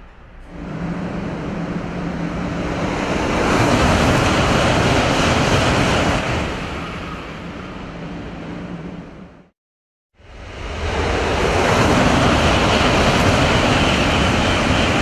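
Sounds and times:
steady low hum: 0:00.0 - 0:03.4
high-speed train passing: 0:00.0 - 0:09.6, 0:10.2 - 0:15.0.

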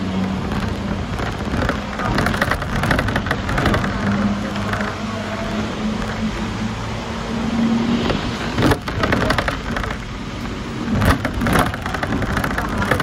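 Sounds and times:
wheels clattering on rails: 0:00.0 - 0:07.0, 0:08.0 - 0:13.0
tram running hum: 0:00.0 - 0:13.0.

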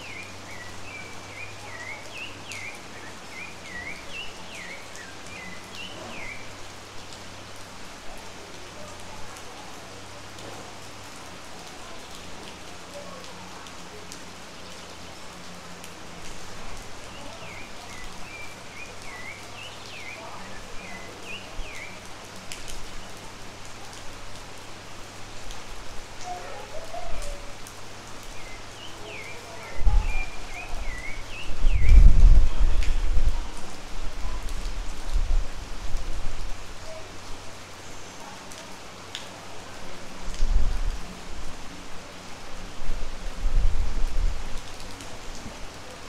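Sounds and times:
bird chirping: 0:00.0 - 0:06.5
rain on roofs and foliage: 0:00.0 - 0:46.0.

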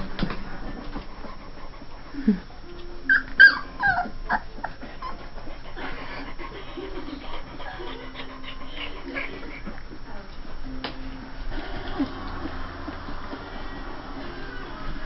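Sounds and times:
puppy whimpering: 0:02.1 - 0:09.7.

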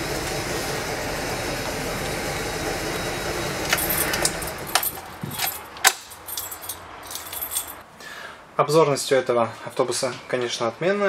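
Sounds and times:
keys jangling: 0:03.7 - 0:07.8.

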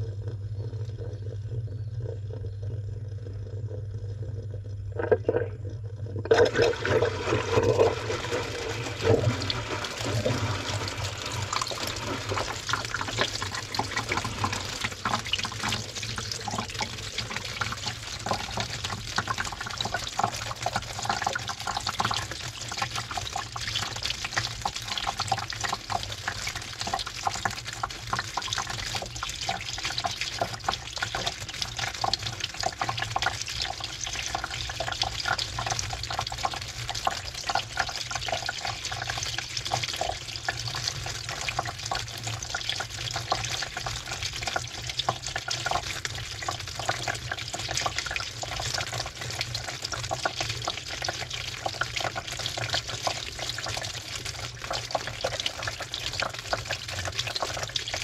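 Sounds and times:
steady low hum: 0:00.0 - 0:19.0
water splashing in washing machine: 0:06.2 - 0:58.0.

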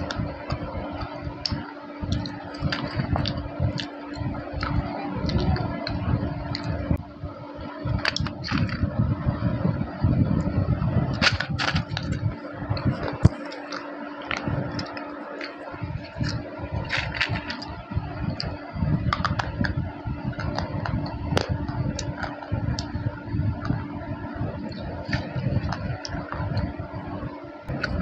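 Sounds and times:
low hum: 0:00.0 - 0:28.0
chewing crunches: 0:13.0 - 0:17.8.

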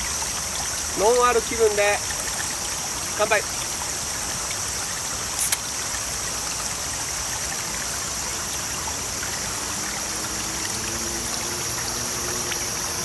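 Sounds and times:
stream rushing: 0:00.0 - 0:13.0
drink can opening: 0:05.4 - 0:05.7.

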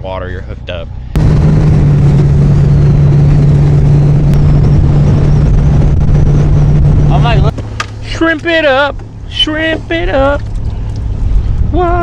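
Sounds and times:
motorboat engine hum: 0:00.6 - 0:12.0
rushing wind: 0:00.9 - 0:12.0.

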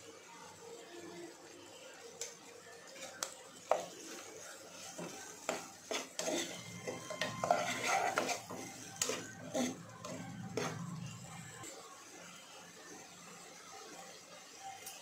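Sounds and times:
metal spoon stirring in pot: 0:03.0 - 0:11.5
spoon clinking and scraping pot: 0:04.8 - 0:11.0.

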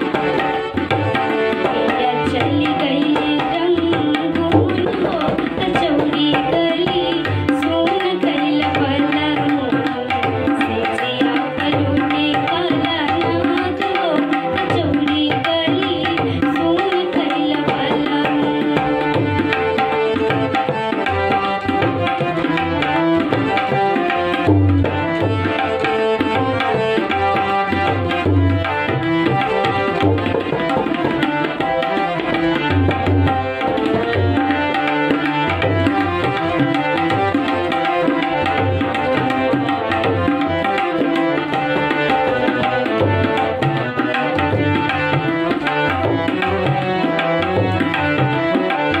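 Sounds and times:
sustained instrumental melody: 0:19.2 - 0:48.9.

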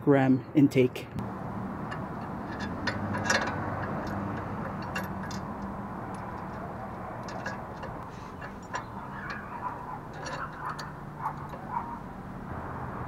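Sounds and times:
small metal parts clinking: 0:01.8 - 0:12.2.

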